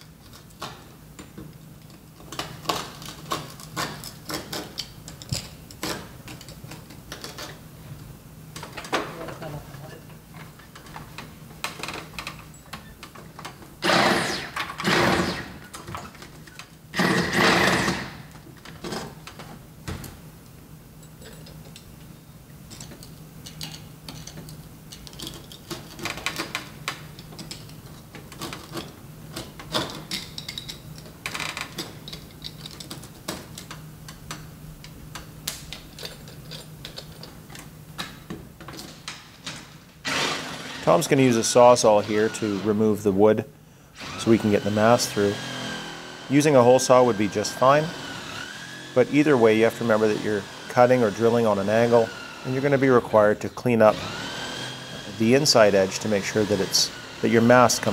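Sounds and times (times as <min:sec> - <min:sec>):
loud noisy bursts: 0:13.8 - 0:15.6, 0:16.9 - 0:18.2, 0:40.0 - 0:42.8, 0:44.0 - 0:53.2, 0:53.9 - 0:57.9.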